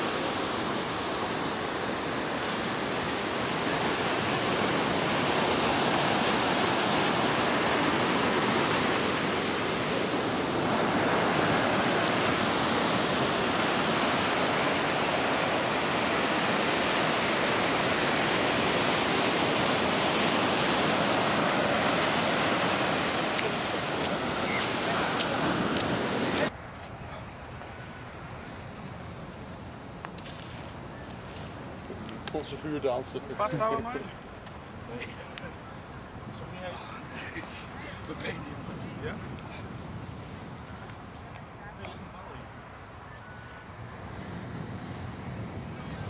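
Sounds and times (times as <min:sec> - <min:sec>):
small waves breaking: 0:00.0 - 0:26.7.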